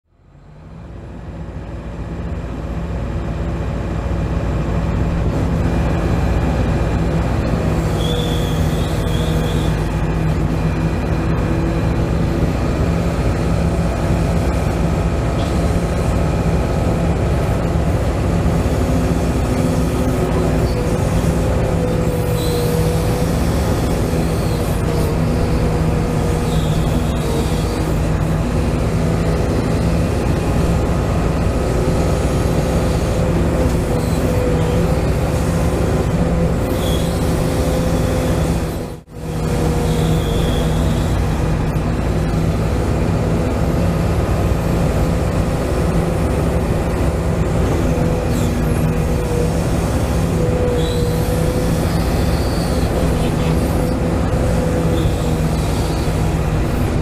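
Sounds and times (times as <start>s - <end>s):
hydraulic pump whine: 5.2s - 57.0s
brief high squeals: 7.8s - 9.9s, 36.6s - 38.6s, 39.8s - 41.3s, 50.5s - 54.0s.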